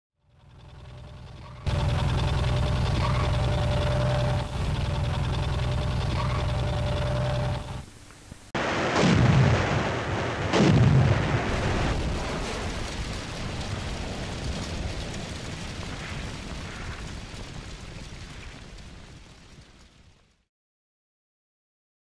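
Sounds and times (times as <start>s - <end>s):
heavy explosions with rumble: 8.6s - 20.2s.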